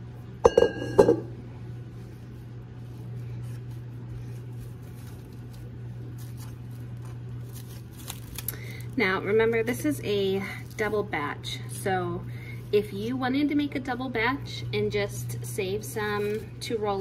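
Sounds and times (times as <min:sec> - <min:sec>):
steady low hum: 0:00.0 - 0:17.0
metal bowl knocking on counter: 0:00.4 - 0:01.3
hands squishing dough on plastic: 0:01.8 - 0:11.3.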